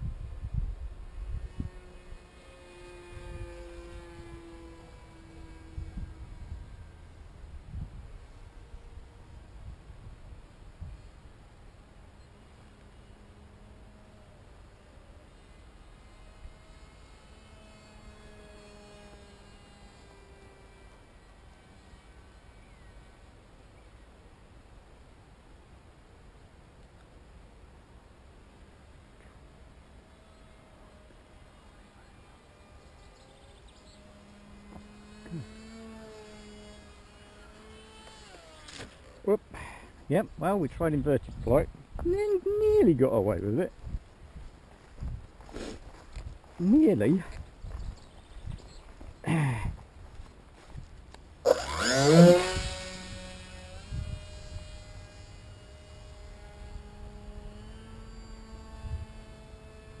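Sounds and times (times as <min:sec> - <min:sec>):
wind rumble on microphone: 0:00.0 - 0:11.4, 0:40.6 - 0:42.9, 0:43.7 - 0:46.6, 0:47.2 - 0:51.0, 0:52.0 - 1:00.0
small electric motor droning: 0:00.0 - 0:24.1, 0:28.3 - 1:00.0.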